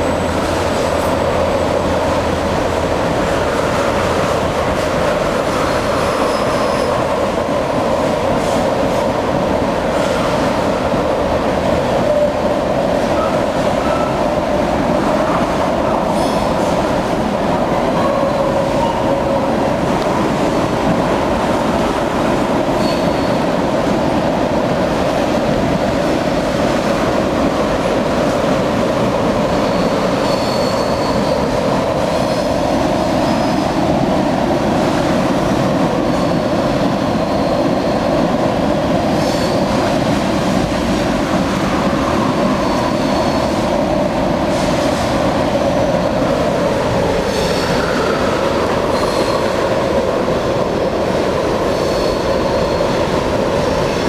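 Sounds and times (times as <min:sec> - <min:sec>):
train wheels rumbling on rails: 0:00.0 - 0:54.0
faint high wheel squeal: 0:22.8 - 0:23.4, 0:29.5 - 0:31.6, 0:37.2 - 0:38.0, 0:42.5 - 0:43.6, 0:51.7 - 0:52.9.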